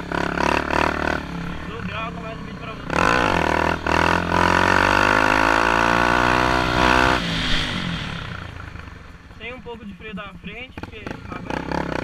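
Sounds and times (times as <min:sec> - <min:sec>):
motorcycle engine accelerating: 0:00.0 - 0:12.0
motorcycle coasting: 0:06.3 - 0:12.0.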